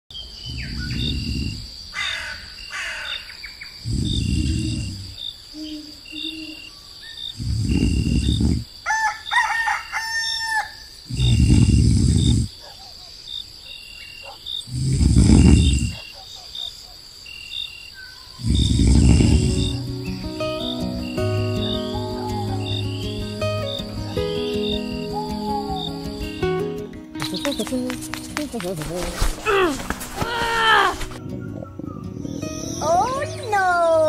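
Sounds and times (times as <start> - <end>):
crickets chirping: 0.1 - 34.0
cartoon snoring: 0.5 - 1.7, 3.8 - 5.2, 7.4 - 8.7, 11.1 - 12.5, 14.7 - 16.0, 18.4 - 19.9
rooster crowing: 8.8 - 10.9.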